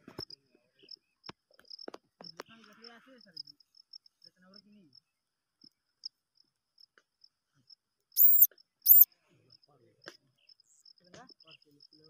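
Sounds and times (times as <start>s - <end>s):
rat pups squeaking: 8.2s - 9.1s.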